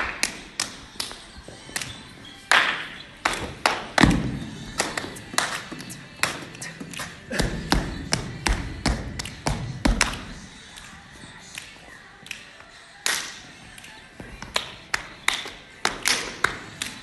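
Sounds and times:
hands clapping: 0:00.0 - 0:04.1, 0:04.8 - 0:07.2, 0:11.5 - 0:17.0.

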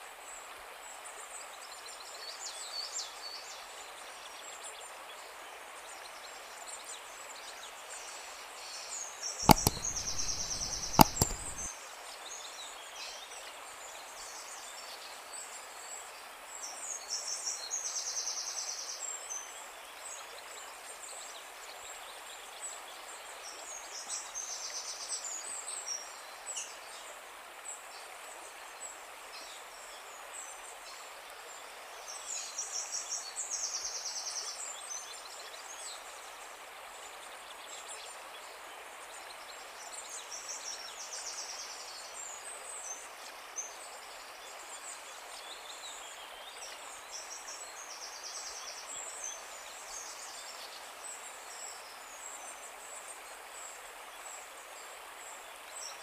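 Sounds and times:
outdoor background hiss: 0:00.0 - 0:56.0
small birds trilling: 0:09.5 - 0:11.7.

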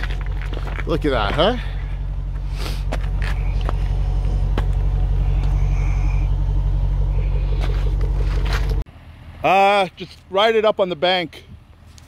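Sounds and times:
stones clicking and crunching: 0:00.0 - 0:05.6
engine and exhaust rumbling: 0:00.0 - 0:12.0.

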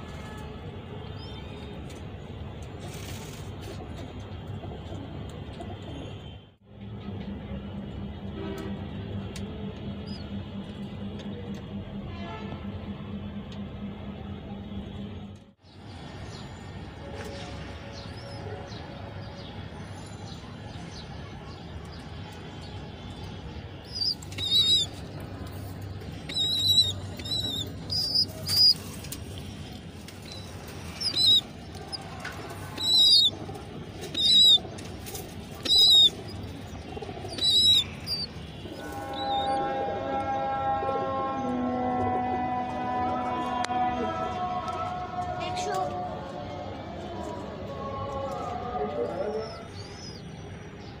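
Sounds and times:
pigeon squabs squeaking: 0:23.9 - 0:25.0, 0:26.2 - 0:29.1, 0:30.2 - 0:33.4, 0:34.0 - 0:39.6.

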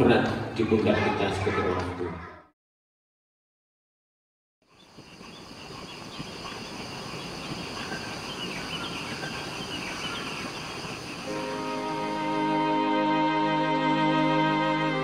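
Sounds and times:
small birds chirping: 0:04.6 - 0:12.3
soft music: 0:11.3 - 0:15.0.

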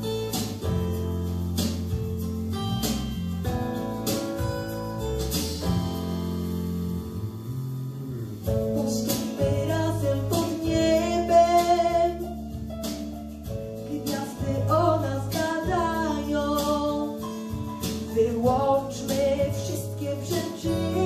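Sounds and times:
acoustic guitar backing track: 0:00.0 - 0:21.0
girl singing: 0:08.7 - 0:12.4, 0:13.9 - 0:17.3, 0:18.2 - 0:21.0.

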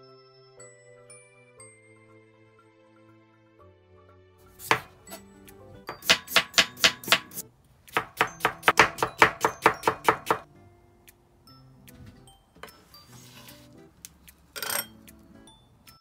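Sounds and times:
knife chopping on cutting board: 0:04.6 - 0:05.2, 0:05.9 - 0:10.5.

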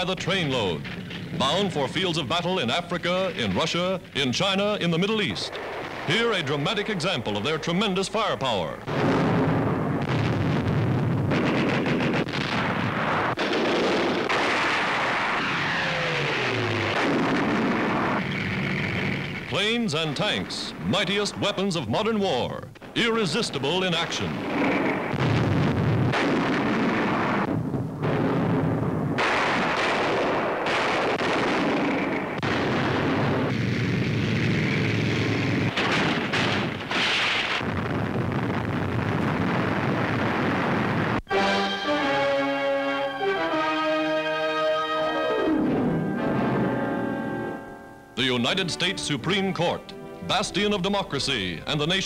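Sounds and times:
rumble of engines and blasts: 0:00.0 - 0:21.8, 0:23.7 - 0:41.2
tank guns firing: 0:00.0 - 0:22.0, 0:22.8 - 0:41.2
shells bursting: 0:00.0 - 0:42.6.

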